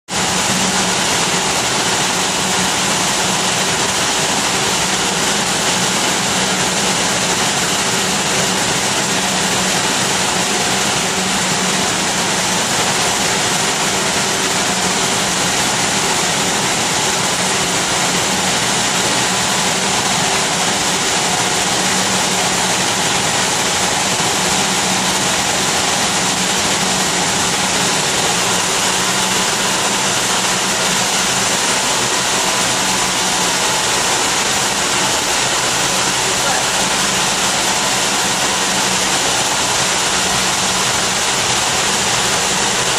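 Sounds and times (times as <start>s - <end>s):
low machine hum: 0.1s - 42.9s.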